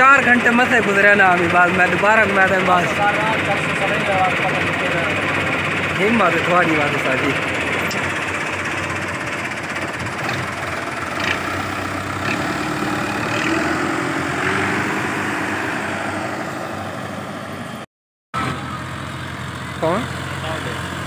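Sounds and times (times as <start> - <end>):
tractor diesel engine clattering: 0.0 - 17.8, 18.4 - 21.0.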